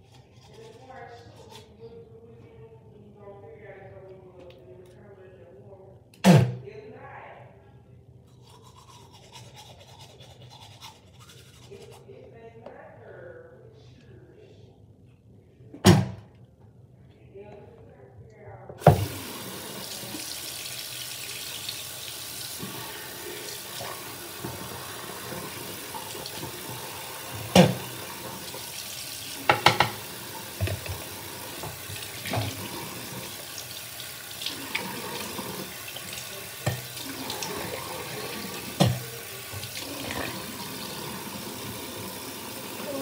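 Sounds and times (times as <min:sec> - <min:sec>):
tap running into sink: 0:18.8 - 0:20.4, 0:23.8 - 0:28.6, 0:29.4 - 0:33.4, 0:34.4 - 0:41.9.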